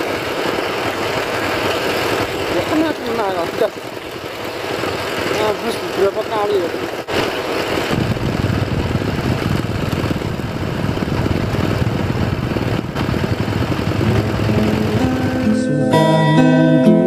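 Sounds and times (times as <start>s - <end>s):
engine running steadily: 0.0s - 15.7s.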